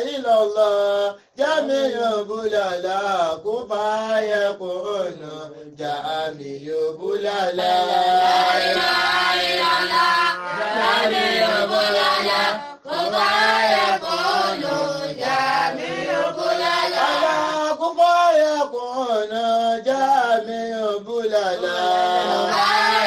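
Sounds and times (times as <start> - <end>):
person chanting melodically: 21.4 - 23.0.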